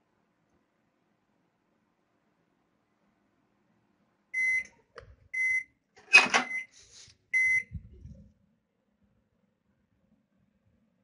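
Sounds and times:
microwave beeps: 4.4 - 6.7, 7.3 - 7.8.

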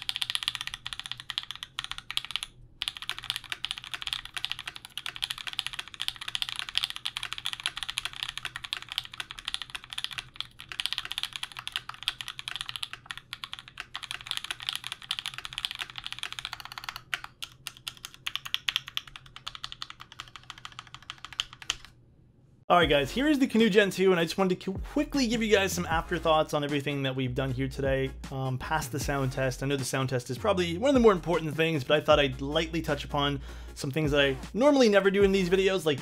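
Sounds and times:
mechanical keyboard typing: 0.0 - 21.9.

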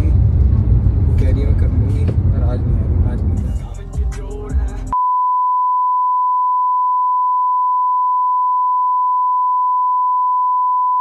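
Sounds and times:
censor beep tone: 5.0 - 11.0.

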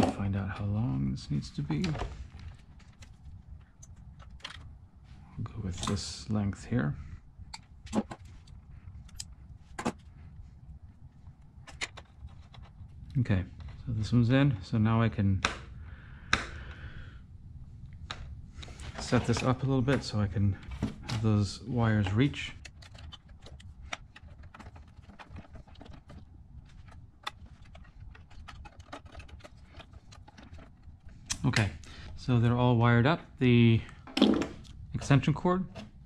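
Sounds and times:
wire handling rustle: 18.0 - 31.6.

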